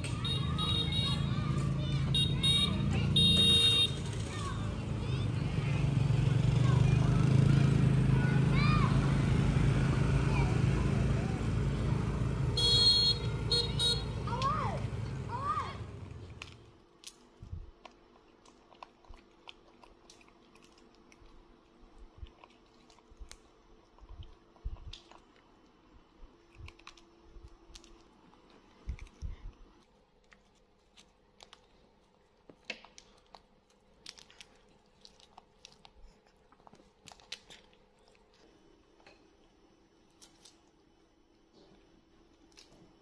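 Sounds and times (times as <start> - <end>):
peanut shells cracking: 16.3 - 21.5, 32.4 - 38.4
monkeys chewing: 17.8 - 25.7, 26.4 - 38.6.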